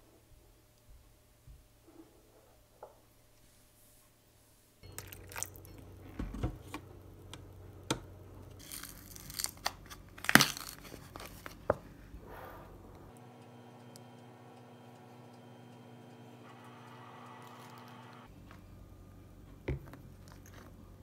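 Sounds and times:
crinkling and rustling: 0:08.5 - 0:12.2, 0:19.5 - 0:21.0.

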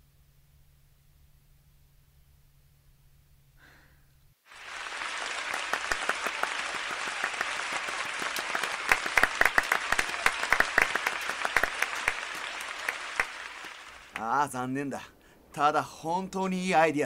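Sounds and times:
audience applauding: 0:04.5 - 0:14.4
sharp single claps: 0:04.7 - 0:14.3.

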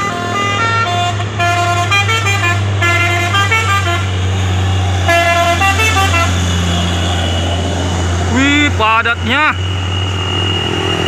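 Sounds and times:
musical air horn tune: 0:00.0 - 0:04.2, 0:05.1 - 0:06.4
diesel truck engine rumble: 0:00.0 - 0:11.0.

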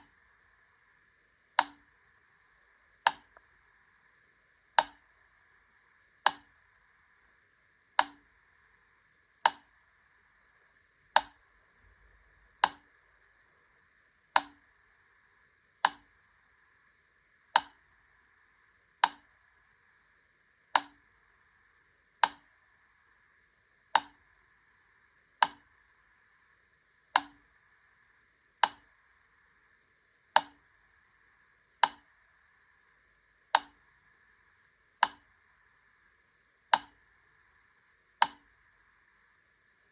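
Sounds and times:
faint steady hiss: 0:00.0 - 0:39.9
metronome ticking: 0:01.6 - 0:01.9, 0:03.0 - 0:03.5, 0:08.0 - 0:08.3, 0:12.5 - 0:12.9, 0:14.3 - 0:14.6, 0:15.8 - 0:16.1, 0:27.1 - 0:27.5, 0:36.7 - 0:37.0, 0:38.2 - 0:38.5.

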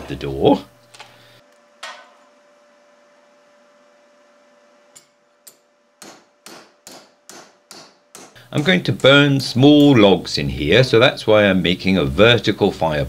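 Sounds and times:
faint steady hum: 0:00.0 - 0:13.0
hammer striking metal: 0:05.0 - 0:10.2.

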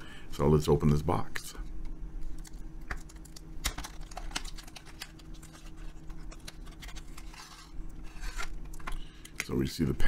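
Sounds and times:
rustle of card and packaging: 0:02.2 - 0:09.3.

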